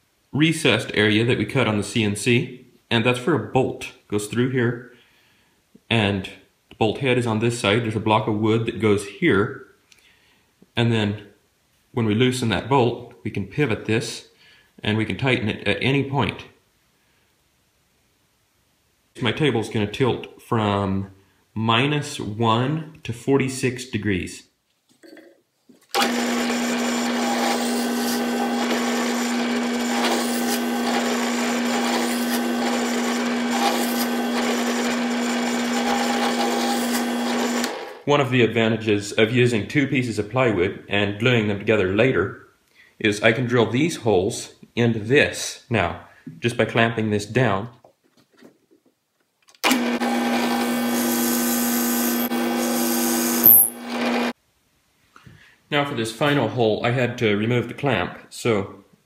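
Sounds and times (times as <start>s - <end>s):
drill press humming: 25.9s - 38.0s, 49.6s - 54.3s
drill bit boring through plywood: 26.0s - 37.9s, 49.6s - 54.3s.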